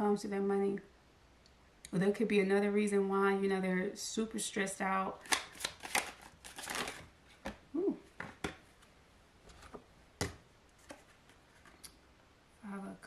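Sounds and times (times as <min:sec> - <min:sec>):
cards shuffling: 0:05.2 - 0:07.6, 0:08.2 - 0:11.8.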